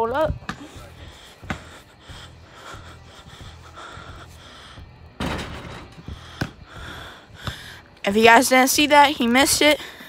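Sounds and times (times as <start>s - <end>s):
person breathing heavily: 0.6s - 5.2s, 5.9s - 8.0s, 9.7s - 10.0s.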